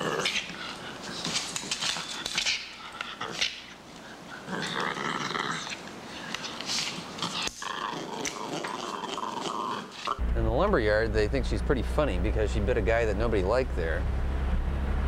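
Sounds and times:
dog growling and snarling: 0:00.0 - 0:10.2.

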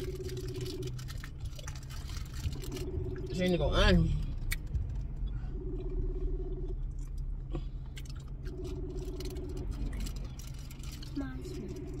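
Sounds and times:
phone ringback tone: 0:00.0 - 0:00.9, 0:02.6 - 0:03.5, 0:08.5 - 0:09.9
candy wrapper crinkling: 0:00.0 - 0:02.9
person chewing: 0:00.0 - 0:03.3, 0:05.6 - 0:12.0
low steady hum: 0:00.0 - 0:12.0.

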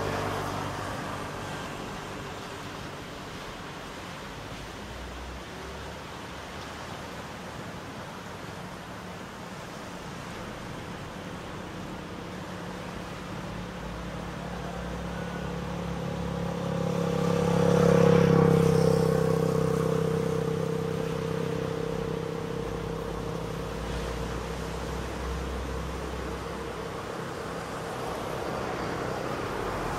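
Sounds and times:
motor engine passing by: 0:00.0 - 0:03.5, 0:12.6 - 0:29.9.

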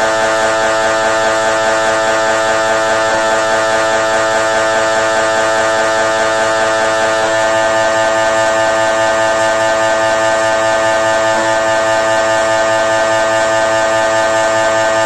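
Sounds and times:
mri scanner buzzing drone: 0:00.0 - 0:15.0.

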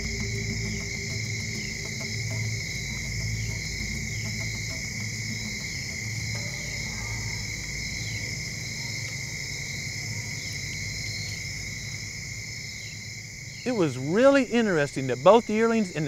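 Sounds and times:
soft music with held low notes: 0:00.0 - 0:09.2
high-pitched insect chorus: 0:00.0 - 0:16.0.

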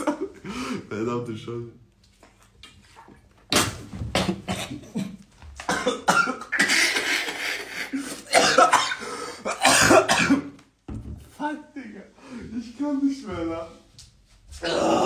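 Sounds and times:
man coughing: 0:04.3 - 0:10.6.

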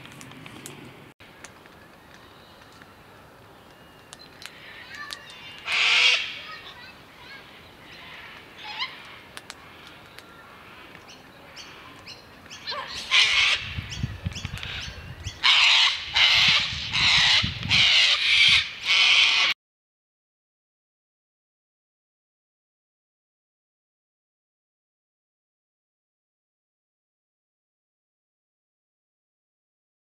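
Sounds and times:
cockatoos rasping calls: 0:05.4 - 0:06.7, 0:12.6 - 0:13.7, 0:14.7 - 0:19.6.

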